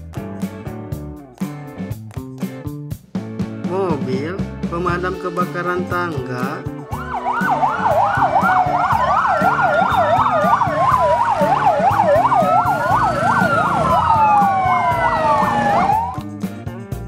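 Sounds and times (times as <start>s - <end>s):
fire engine sirens: 6.8s - 16.3s.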